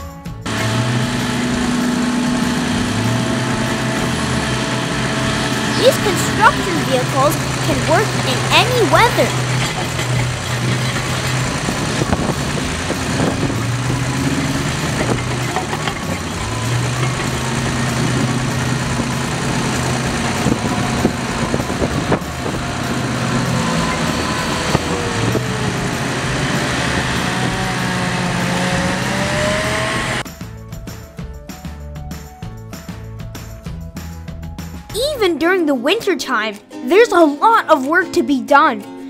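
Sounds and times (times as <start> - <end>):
diesel truck engines running: 0.1 - 30.3.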